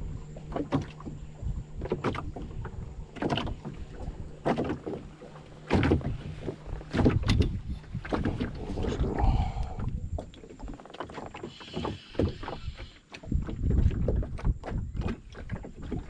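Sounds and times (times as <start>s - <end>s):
low steady rumble: 0.0s - 10.4s.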